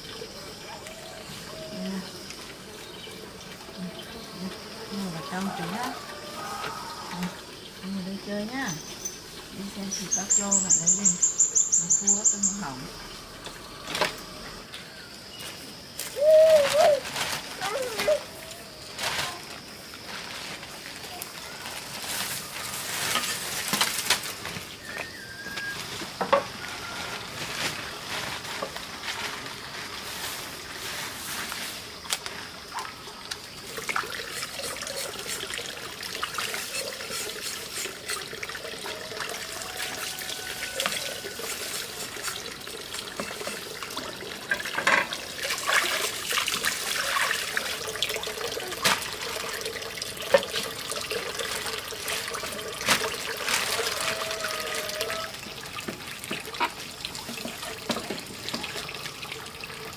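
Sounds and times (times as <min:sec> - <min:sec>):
water splashing in plastic basin: 0:31.9 - 0:59.9.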